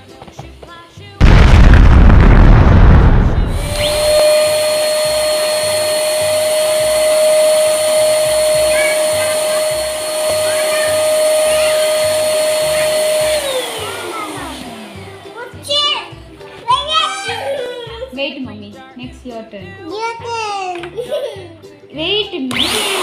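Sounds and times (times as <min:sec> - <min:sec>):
rushing air: 0:01.2 - 0:15.1
electric balloon pump motor whine: 0:03.5 - 0:15.3, 0:22.5 - 0:23.0.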